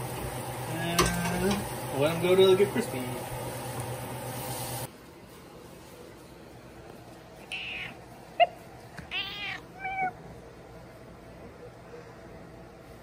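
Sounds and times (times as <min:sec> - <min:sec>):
cat meowing and chirping: 0:07.4 - 0:10.2.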